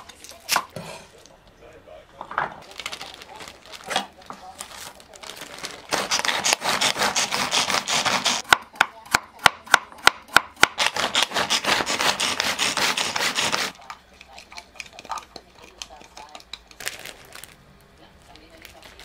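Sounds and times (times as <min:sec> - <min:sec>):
manual food chopper whirring: 0:05.4 - 0:08.5, 0:10.6 - 0:13.8
rapid cutting on wooden board: 0:05.9 - 0:08.6, 0:10.0 - 0:13.8
cleaver chopping carrot: 0:05.9 - 0:13.8.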